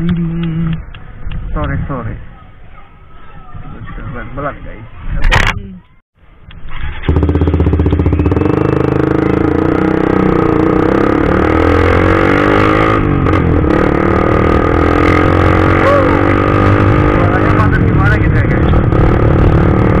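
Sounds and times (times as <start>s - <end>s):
motorcycle engine revving: 6.7s - 20.0s.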